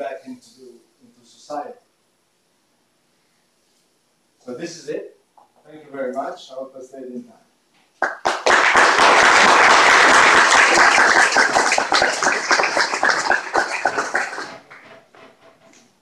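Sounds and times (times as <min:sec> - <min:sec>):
audience applauding: 0:08.0 - 0:15.4.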